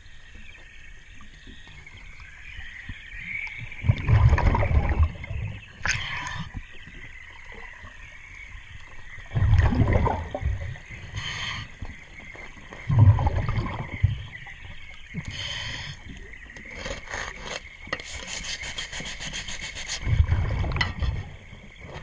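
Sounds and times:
exhaled bubbles rumbling: 1.4s - 16.9s, 20.0s - 22.0s
regulator hissing inhalations: 11.1s - 11.9s, 15.2s - 16.2s
hands scraping propeller: 16.6s - 20.2s.

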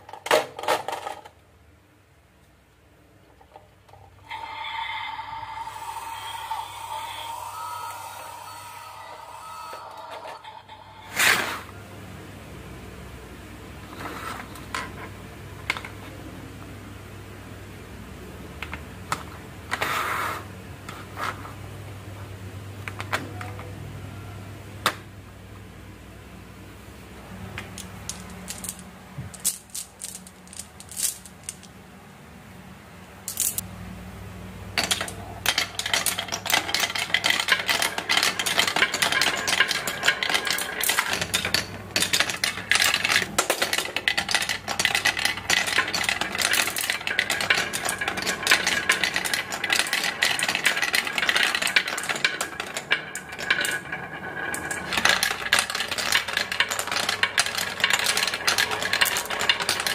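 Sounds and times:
marbles rolling on wooden track: 27.6s - 31.7s, 34.8s - 59.9s.

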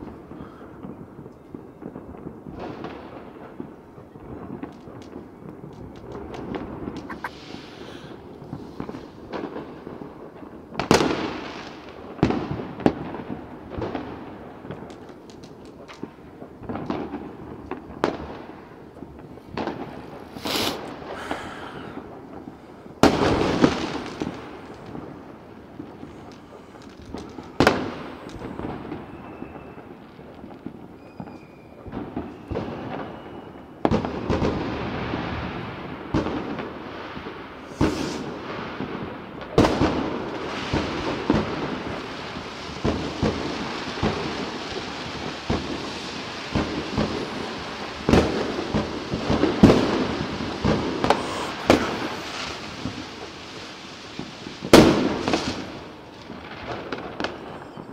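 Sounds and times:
distant fireworks crackling and popping: 0.0s - 57.9s
firework bangs: 0.0s - 57.9s
high firework whistle: 7.0s - 8.2s, 20.3s - 22.0s, 27.4s - 30.0s, 30.9s - 33.9s, 37.7s - 38.4s, 43.3s - 53.8s.

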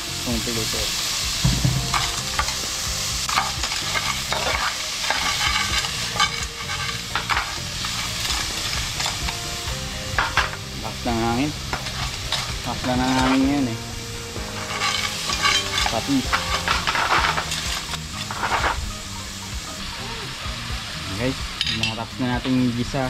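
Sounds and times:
food sizzling in hot oil: 0.0s - 23.0s
spoon scraping a pan: 1.8s - 9.4s, 11.6s - 13.7s, 14.4s - 18.9s.

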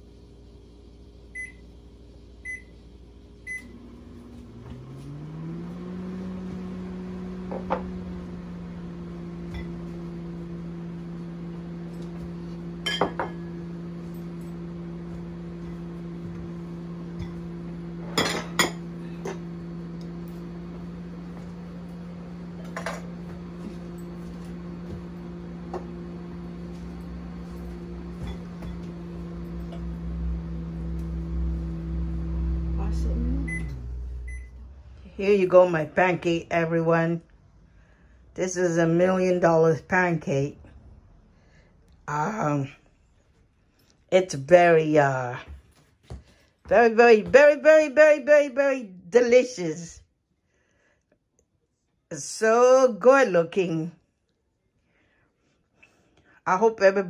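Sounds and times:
microwave hum: 0.0s - 49.8s
microwave keypad beeps: 1.4s - 1.6s, 2.4s - 2.7s, 3.5s - 3.7s, 33.5s - 34.5s
dishes clinking: 12.9s - 13.4s.

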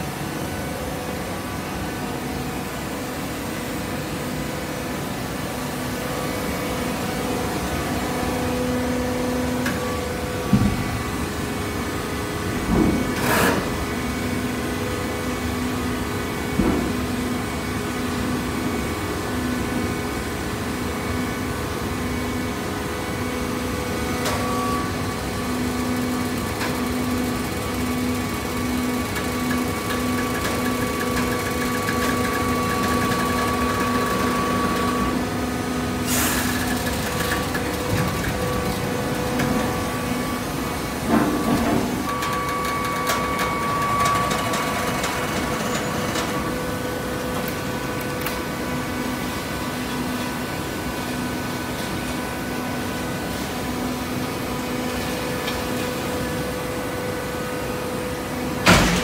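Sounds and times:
hydraulic baler humming: 24.2s - 50.7s.

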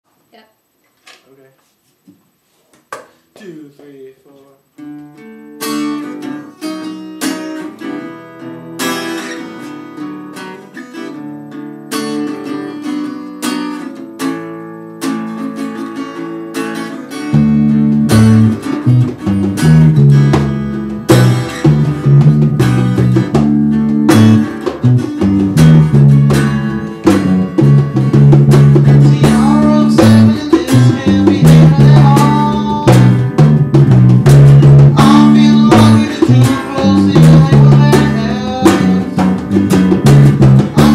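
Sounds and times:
acoustic guitar strumming: 4.6s - 40.9s
electric bass guitar: 15.9s - 40.9s
hand drum: 17.3s - 40.9s
man singing: 28.8s - 33.3s, 34.7s - 39.4s, 40.6s - 40.9s.

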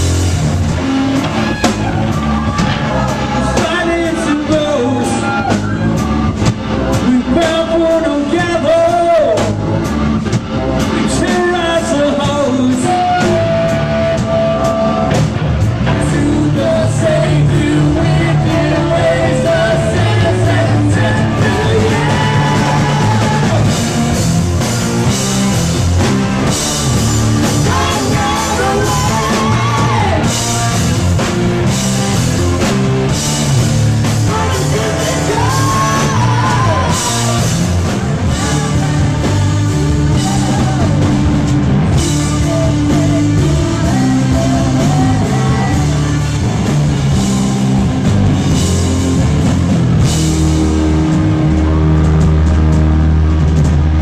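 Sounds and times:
drum kit: 0.0s - 54.0s
guitar: 0.0s - 54.0s
person singing: 15.9s - 23.9s, 27.4s - 30.5s, 34.1s - 46.7s.

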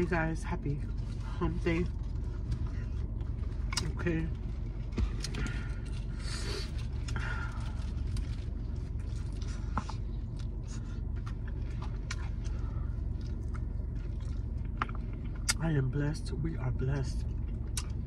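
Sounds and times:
steady low hum in car: 0.0s - 18.0s
person chewing and smacking: 5.1s - 15.6s, 17.3s - 18.0s.

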